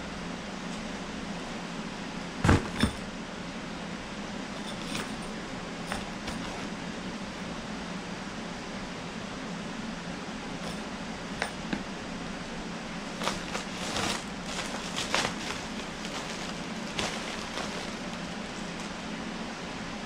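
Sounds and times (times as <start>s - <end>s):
fan running: 0.0s - 20.0s
plastic bag crinkling: 13.1s - 19.0s.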